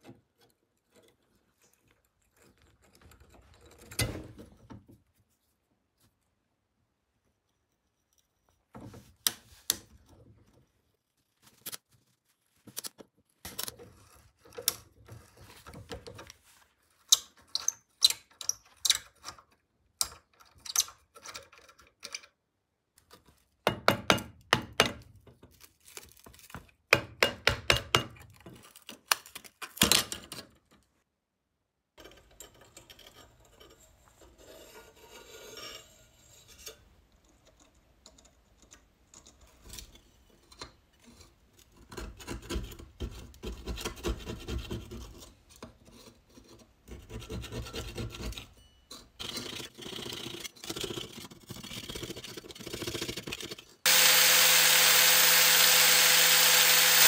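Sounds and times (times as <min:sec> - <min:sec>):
blade scraping insulation: 0:49.4 - 0:57.0.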